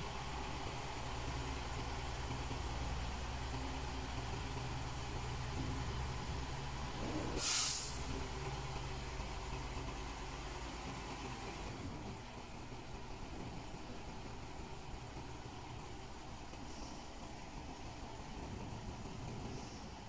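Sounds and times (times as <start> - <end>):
diesel truck engine idling: 0.0 - 20.0
compressed air hiss: 7.4 - 8.1.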